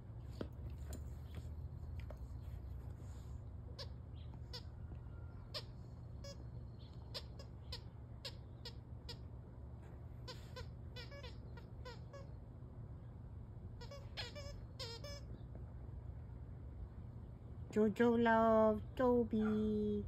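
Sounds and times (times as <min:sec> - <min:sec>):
squeaky dog toy squeaking: 0:03.7 - 0:04.8, 0:05.5 - 0:06.4, 0:07.0 - 0:09.3, 0:10.2 - 0:12.4, 0:13.8 - 0:15.4.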